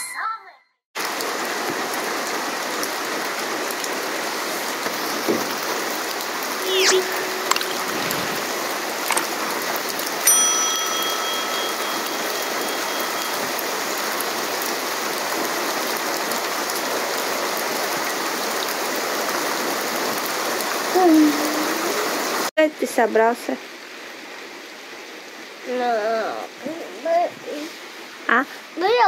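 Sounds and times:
steady rain on roofs: 1.0s - 6.7s, 7.3s - 29.0s
high ringing tone: 6.6s - 9.0s, 10.2s - 14.2s
sharp drip-like clicks: 9.1s - 14.2s.

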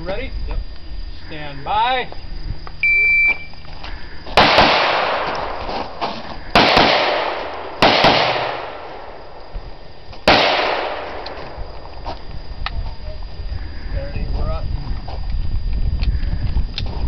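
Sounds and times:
handgun shots with echo: 4.4s - 5.6s, 6.6s - 9.0s, 10.3s - 11.4s.

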